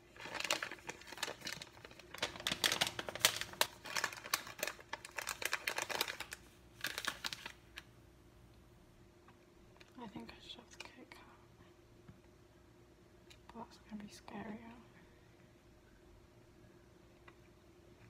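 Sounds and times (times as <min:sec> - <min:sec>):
wrappers crinkling: 0:00.0 - 0:07.9.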